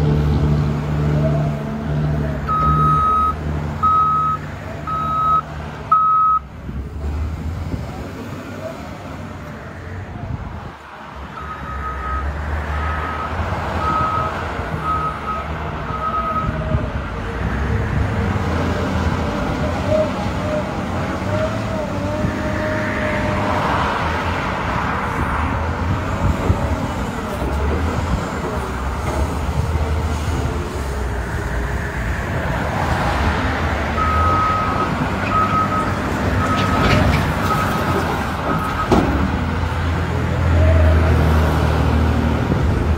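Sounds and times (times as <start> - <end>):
diesel engine under load: 0.0 - 42.9
backup alarm beeping: 2.5 - 6.4.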